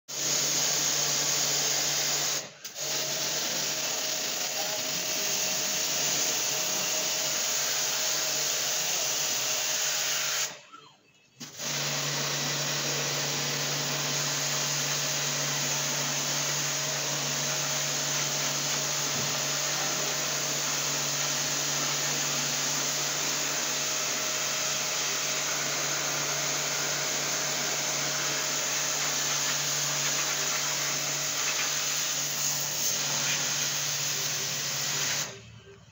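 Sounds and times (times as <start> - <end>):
pump motor hum: 11.5 - 35.4.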